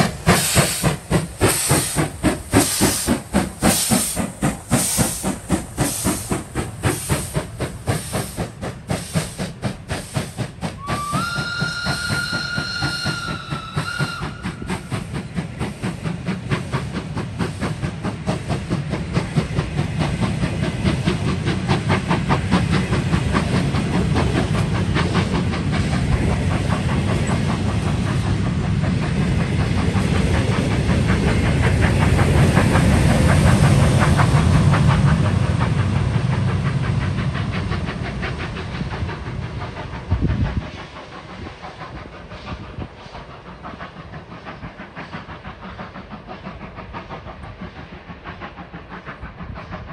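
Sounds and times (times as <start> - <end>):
steam locomotive exhaust chuffs: 0.0 - 49.9
train coaches rumbling and clattering: 0.0 - 49.9
steam whistle: 10.8 - 14.8.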